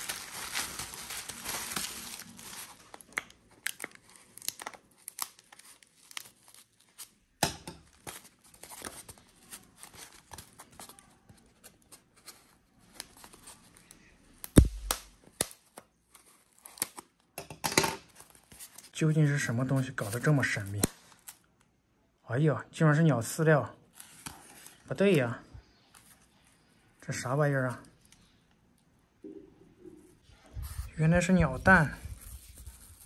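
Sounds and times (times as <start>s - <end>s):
bubble wrap crinkling and tearing: 0.0s - 17.2s.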